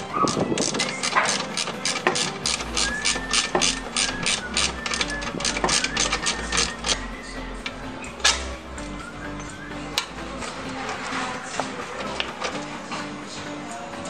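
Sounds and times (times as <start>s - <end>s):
socket ratchet clicking: 0.1s - 7.0s.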